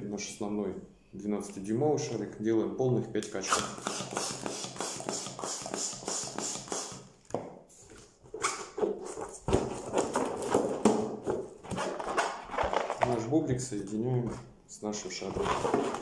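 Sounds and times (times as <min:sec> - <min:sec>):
hand balloon pump strokes: 0:03.5 - 0:07.1.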